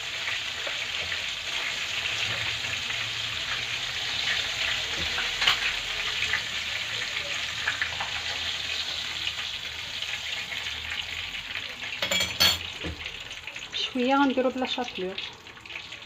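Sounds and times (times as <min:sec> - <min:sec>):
fish sizzling in hot oil: 0:00.0 - 0:16.0.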